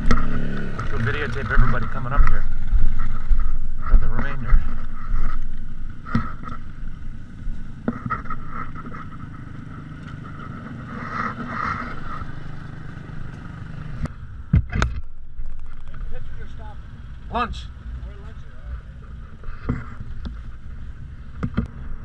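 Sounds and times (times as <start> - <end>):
off-road vehicle engines running: 0.0 - 22.0
sharp knocks: 21.4 - 21.8.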